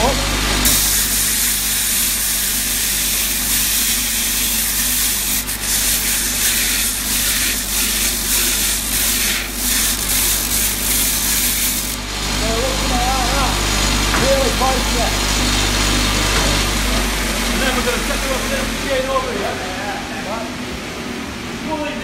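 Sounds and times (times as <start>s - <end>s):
grinder motor hum: 0.0s - 20.1s
steel rasping on abrasive belt: 0.6s - 12.0s.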